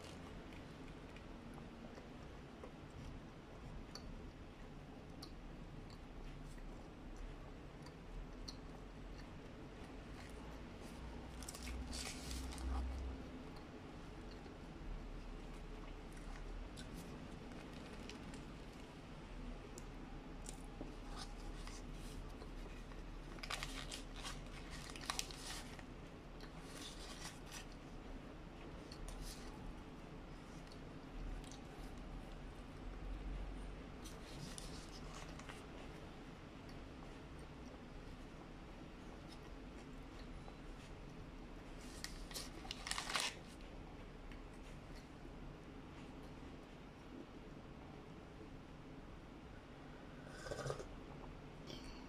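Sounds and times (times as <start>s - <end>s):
person chewing with wet smacks: 0.0s - 41.4s
paper wrapper rustling: 11.4s - 12.7s, 22.9s - 25.9s, 26.6s - 27.8s, 41.8s - 43.6s.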